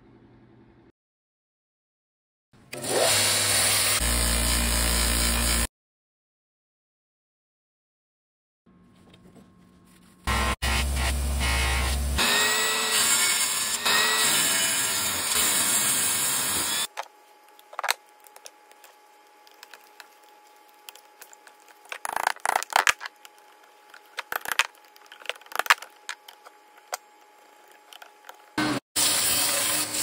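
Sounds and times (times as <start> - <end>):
bench grinder whirring: 2.7 - 5.7, 10.3 - 30.0.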